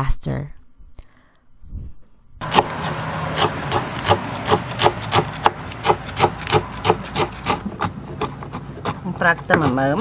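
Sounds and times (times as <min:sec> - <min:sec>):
knife chopping on wooden board: 0:02.4 - 0:10.0.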